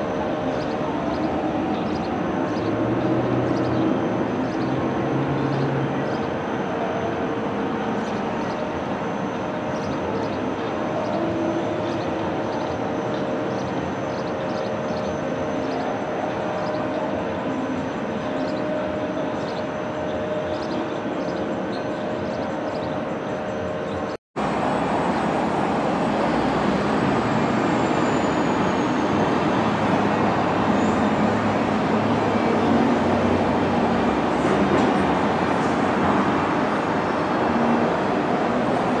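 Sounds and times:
faint steady whine: 0.0s - 39.0s
train wheels rumbling on rails: 23.9s - 39.0s.

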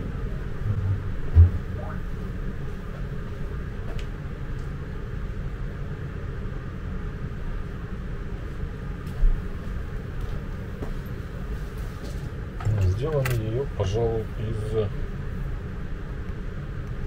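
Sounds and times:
low rumble with hiss: 0.0s - 17.0s
dull low thump: 0.6s - 2.0s.

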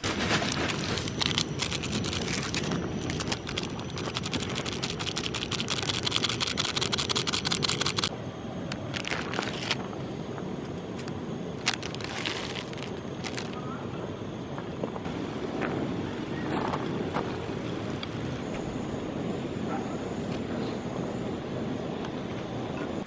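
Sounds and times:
water bubbling and boiling: 0.0s - 8.1s.

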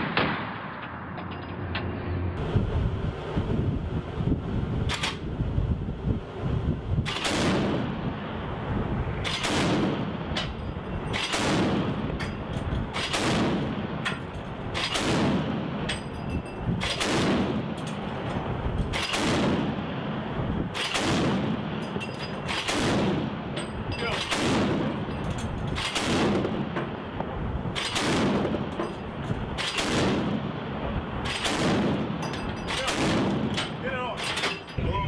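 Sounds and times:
ship's gun firing: 7.0s - 8.0s, 9.2s - 12.1s, 12.9s - 15.9s, 16.8s - 17.8s, 18.9s - 19.9s, 20.7s - 21.8s, 24.0s - 25.0s, 25.7s - 26.8s, 27.7s - 28.8s, 29.6s - 30.5s, 31.2s - 34.7s.

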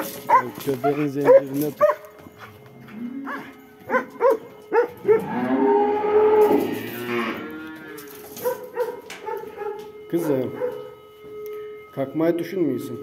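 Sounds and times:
cow mooing: 2.8s - 3.6s, 4.8s - 8.4s.

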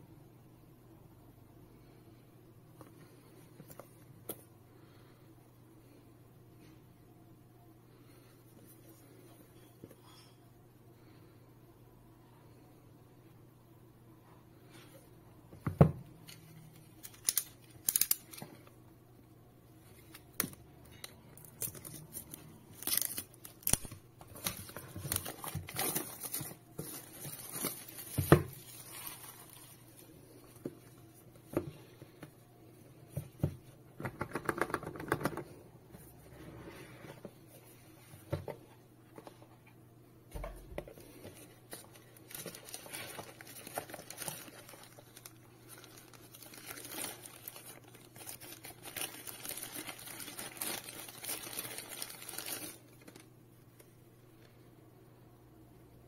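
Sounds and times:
plastic film tearing and crinkling: 17.0s - 18.4s, 21.4s - 30.0s, 41.7s - 53.2s
tissue paper rustling: 21.8s - 30.5s, 41.3s - 53.2s.

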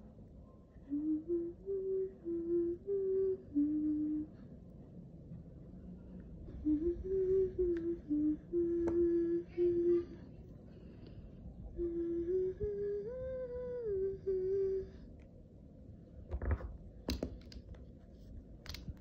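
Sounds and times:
person humming: 0.8s - 4.4s, 6.5s - 10.2s, 11.7s - 15.1s.

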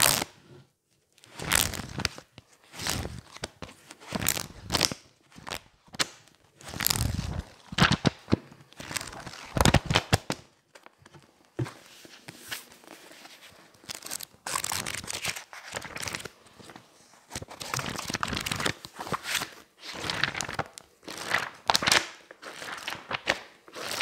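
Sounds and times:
book pages flipping: 1.2s - 24.0s
paper flapping: 17.4s - 24.0s.

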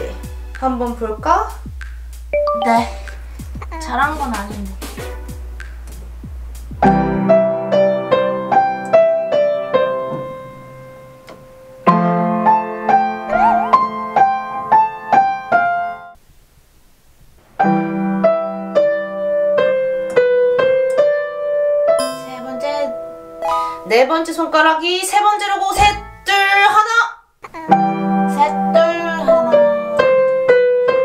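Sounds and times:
upright piano melody: 2.3s - 16.2s, 17.6s - 24.4s, 27.7s - 31.0s.

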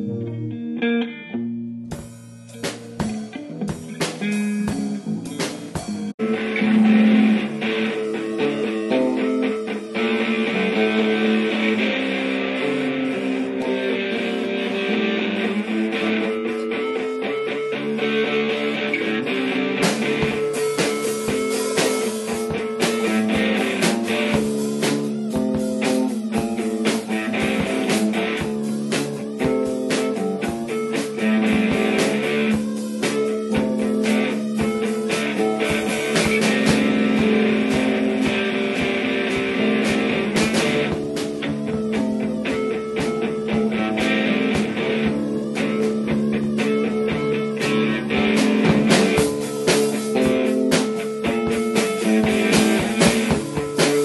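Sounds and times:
plucked guitar music: 0.0s - 54.0s.

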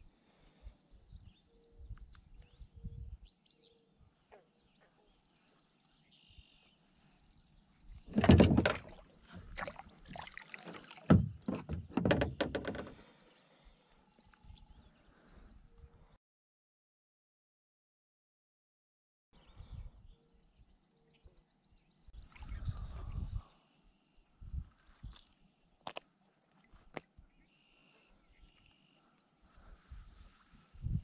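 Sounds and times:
gear knocking against plastic hull: 8.1s - 9.0s, 11.1s - 13.0s.

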